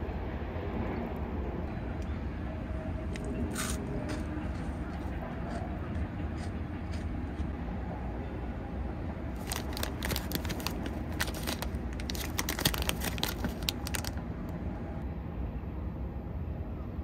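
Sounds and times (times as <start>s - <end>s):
plastic packaging crinkling: 9.4s - 14.2s.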